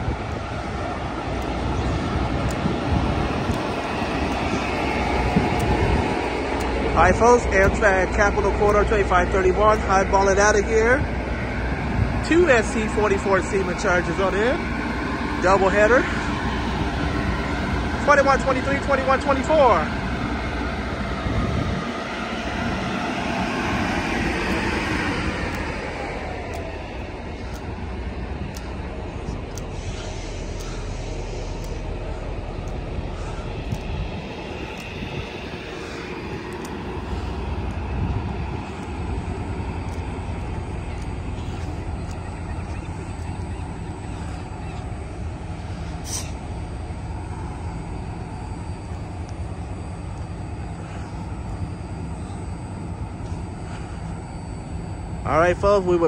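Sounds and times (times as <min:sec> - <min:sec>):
diesel train engines rumbling: 0:00.0 - 0:56.0.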